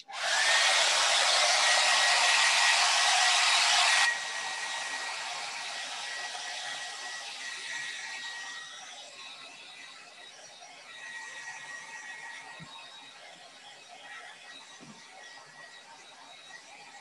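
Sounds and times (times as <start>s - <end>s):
hair dryer blowing: 0.0s - 9.1s.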